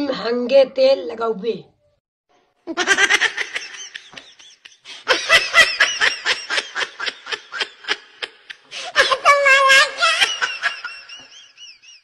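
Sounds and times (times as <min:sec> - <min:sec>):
person laughing: 0:02.7 - 0:09.2.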